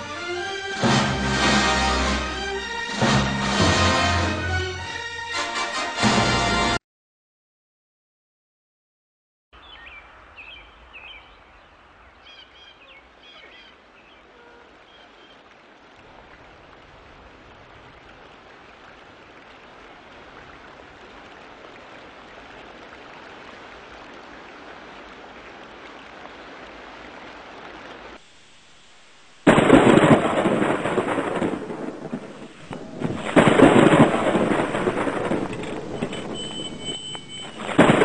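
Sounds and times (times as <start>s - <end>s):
steady rushing hiss: 27.9s - 37.9s
birds chirping: 31.7s - 38.0s.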